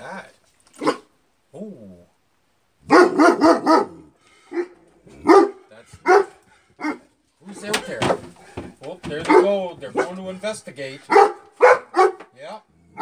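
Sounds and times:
dog barking: 0.8 - 1.1, 2.8 - 7.1, 9.2 - 10.2, 11.0 - 12.3.

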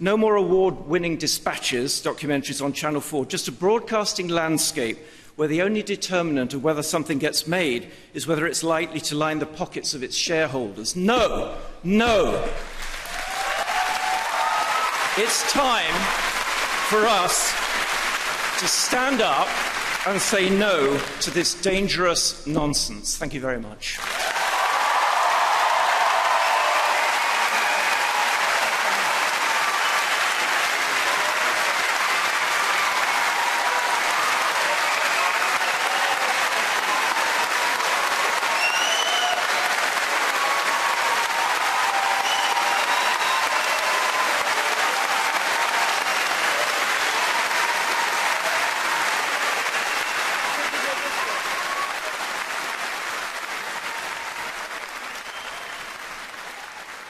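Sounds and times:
large audience applauding: 12.0 - 21.7, 24.0 - 57.0.

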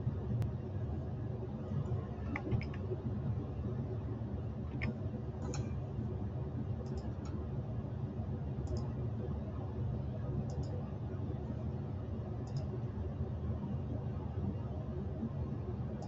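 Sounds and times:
computer mouse button clicks: 2.3 - 2.8.

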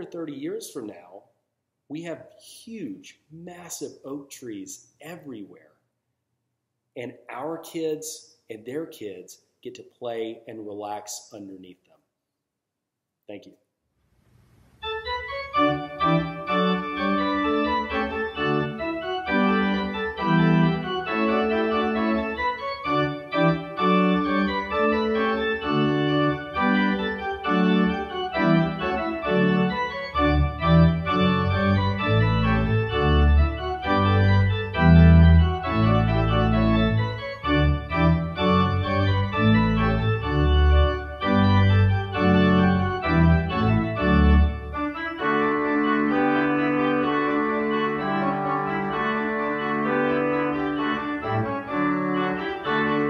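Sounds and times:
organ chords: 14.6 - 53.0
deep organ bass notes: 14.8 - 53.0.

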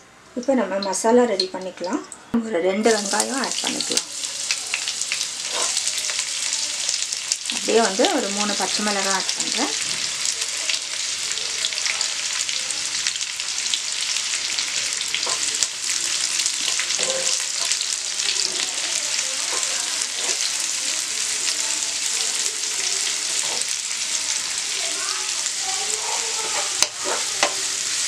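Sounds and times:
onions sizzling in hot oil: 2.8 - 28.0
wooden spatula scraping pan: 5.5 - 5.8, 23.3 - 23.8, 26.1 - 27.6.

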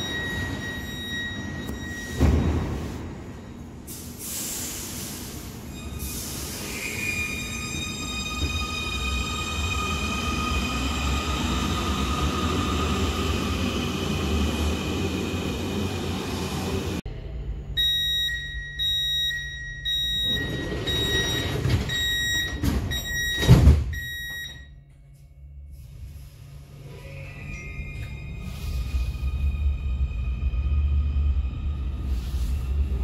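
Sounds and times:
door warning beeps: 0.0 - 3.0, 17.8 - 24.8
train doors thudding shut: 2.1 - 3.1.

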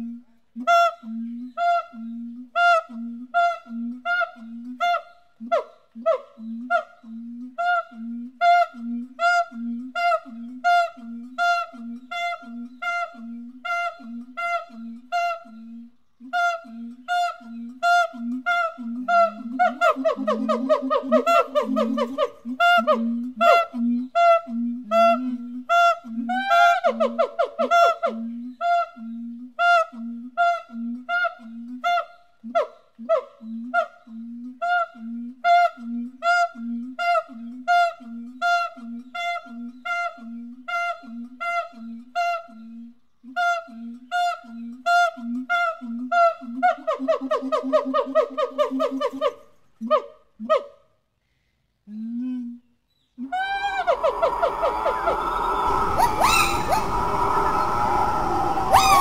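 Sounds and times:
ape hooting calls: 53.3 - 59.0.

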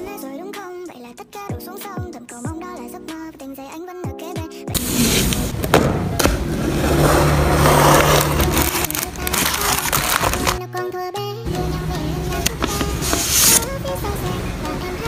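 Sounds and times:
background music: 0.0 - 15.0
packaging crinkling and rustling: 7.7 - 10.6.

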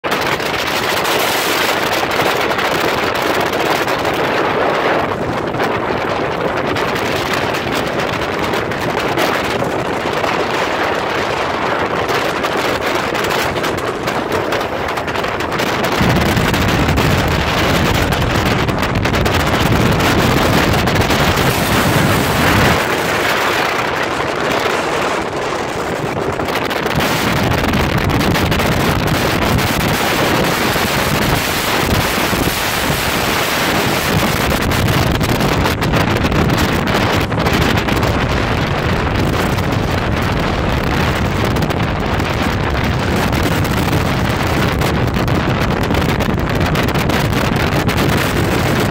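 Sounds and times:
water rushing past hull: 0.0 - 48.9
wind buffeting microphone: 0.0 - 48.9.

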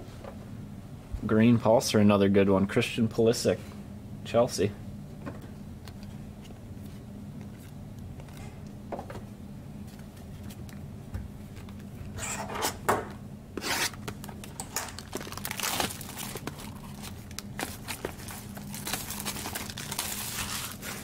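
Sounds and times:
packaging tearing: 13.6 - 21.0
foil crinkling: 14.1 - 21.0.

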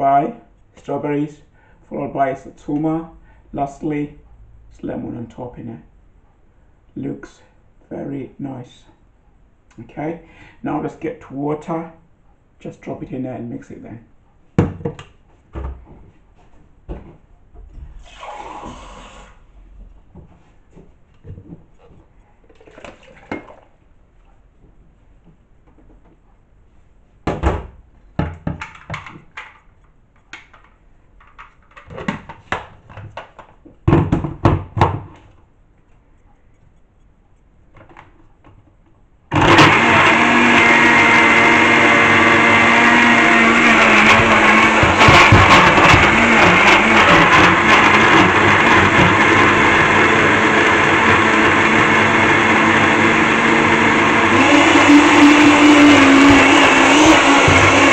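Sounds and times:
water pouring into blender jug: 22.5 - 23.7
blender motor running: 39.3 - 57.9.

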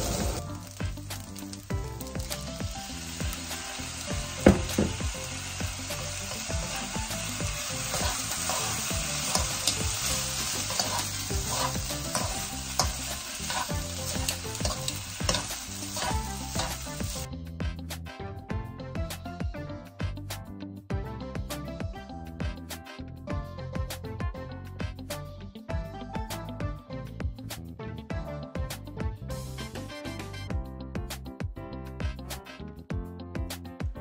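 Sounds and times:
rice sizzling in a wok: 0.0 - 17.3
metal utensils scraping a pan: 7.7 - 17.2.

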